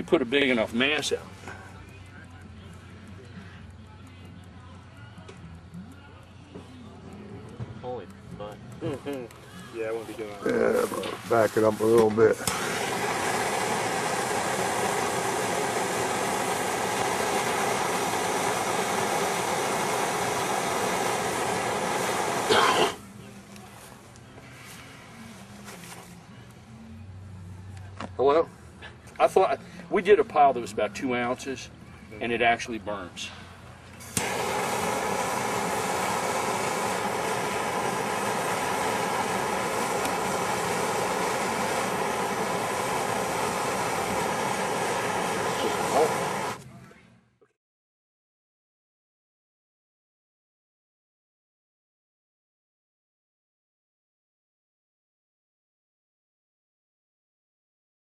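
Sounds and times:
gas torch flame hissing: 8.8 - 23.1, 34.0 - 46.6.

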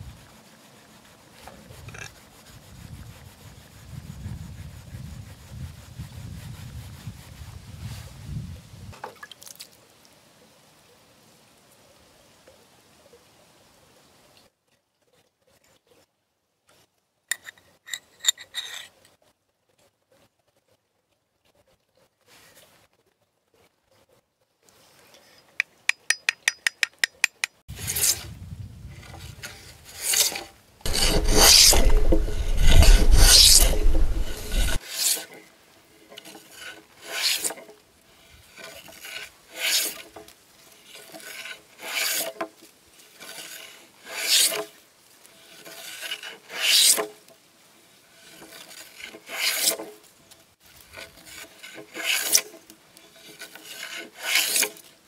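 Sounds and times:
plane shaving timber: 29.5 - 35.2, 51.2 - 52.4, 53.3 - 54.8.

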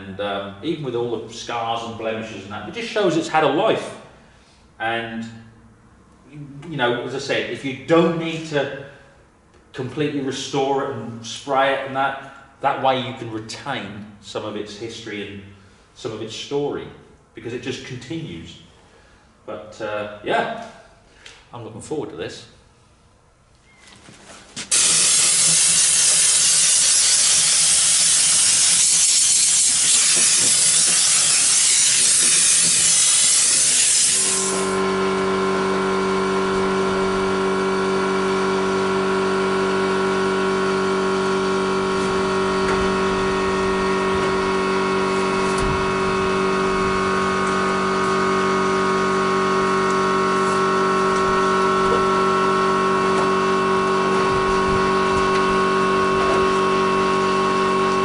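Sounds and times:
pressure washer spray hissing: 24.6 - 34.8
motor and pump humming: 24.7 - 58.0.

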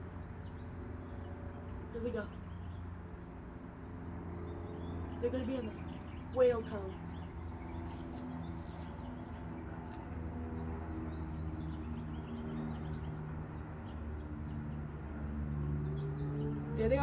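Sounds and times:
distant warning siren tones: 4.8 - 17.0
siren wail rising in pitch: 15.4 - 17.0.

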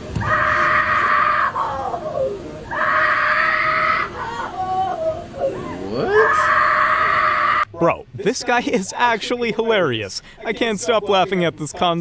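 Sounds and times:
high-pitched screaming: 0.2 - 4.7.

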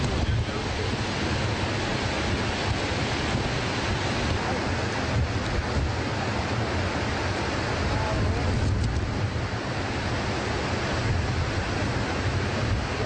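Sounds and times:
waterfall rushing: 0.0 - 13.0.

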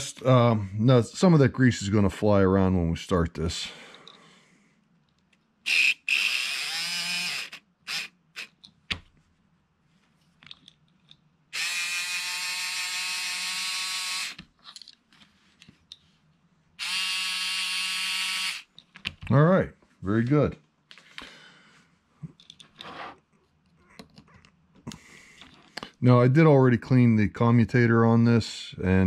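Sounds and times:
small electric motor whining: 5.7 - 8.5, 11.6 - 14.4, 16.8 - 18.7.

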